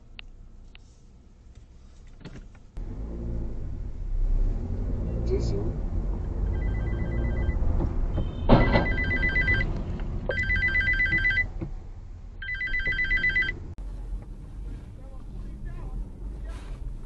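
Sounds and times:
road rumble: 0.0 - 17.0
electronic alarm trilling: 6.5 - 7.6, 8.6 - 9.6.

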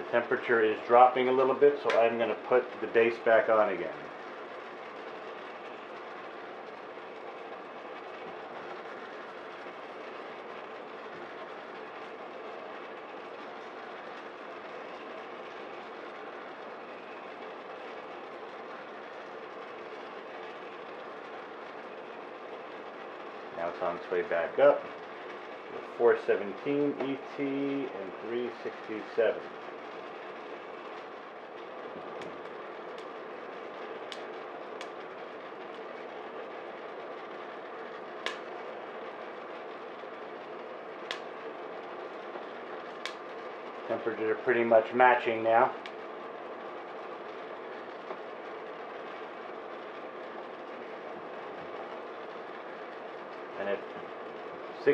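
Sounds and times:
oven fan blowing: 0.0 - 54.9
stirring arm turning beans: 0.0 - 54.9
sharp clicks: 38.2 - 38.5, 41.0 - 41.3.

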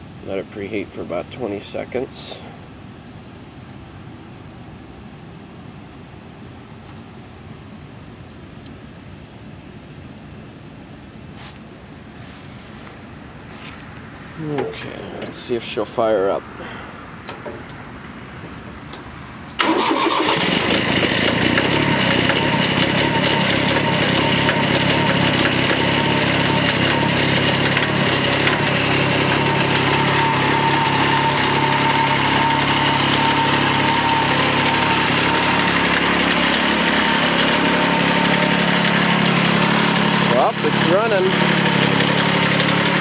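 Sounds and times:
diesel tractor engine starting and running: 17.2 - 43.0.

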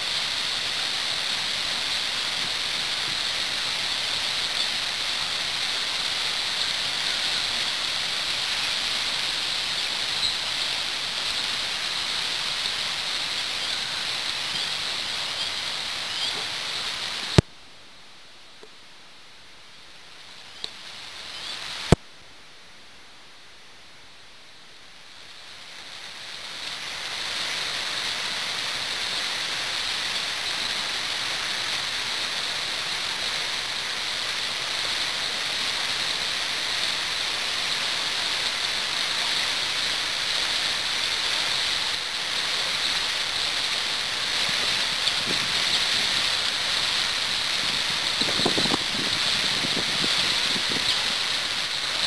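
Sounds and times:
river rapids rushing: 0.0 - 17.4, 25.9 - 52.0.

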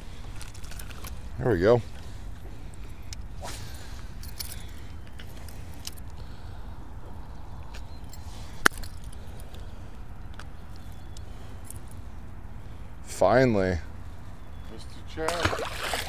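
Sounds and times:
small metallic clicks and clinks: 4.2 - 6.2.

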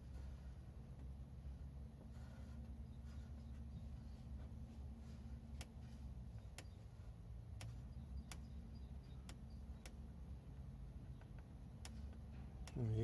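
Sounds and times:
low steady hum: 0.0 - 13.0
small sharp ticks: 5.5 - 6.8, 7.5 - 10.1.

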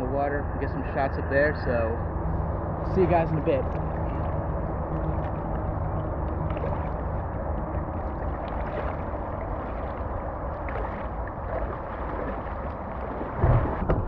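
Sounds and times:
lake water lapping and gurgling: 0.0 - 14.0
splashes of wading: 2.2 - 14.0
loud bump: 13.4 - 14.0.

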